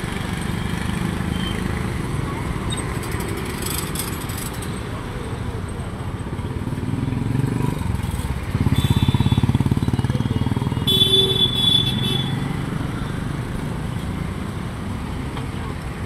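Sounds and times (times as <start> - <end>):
motorcycle engine passing close: 6.7 - 13.3.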